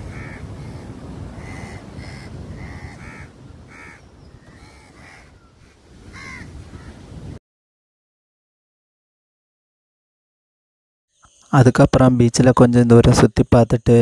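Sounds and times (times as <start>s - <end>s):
crows cawing: 0.0s - 7.1s.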